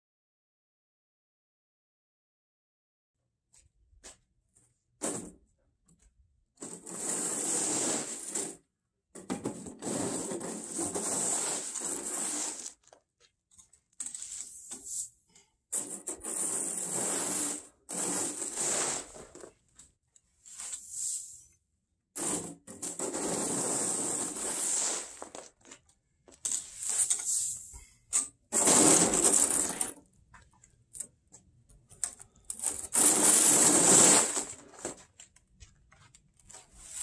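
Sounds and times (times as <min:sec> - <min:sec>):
snow pusher scraping concrete: 0:06.8 - 0:08.6, 0:09.8 - 0:12.9, 0:16.1 - 0:19.4, 0:22.2 - 0:25.5, 0:28.6 - 0:29.7, 0:32.9 - 0:35.0.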